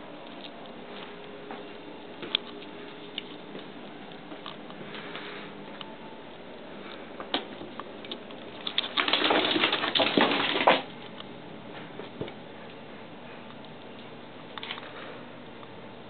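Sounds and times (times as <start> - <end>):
cats scrambling on tiled floor: 8.5 - 10.9.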